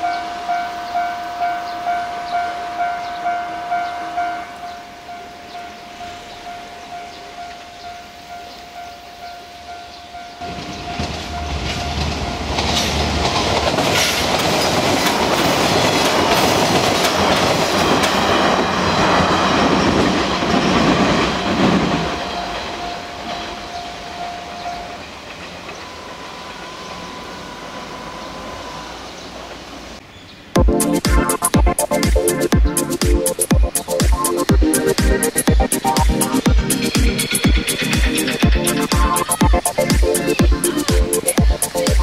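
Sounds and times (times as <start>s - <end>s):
level crossing bell ringing: 0.0s - 12.6s
train wheels clattering: 10.4s - 27.6s, 30.6s - 42.0s.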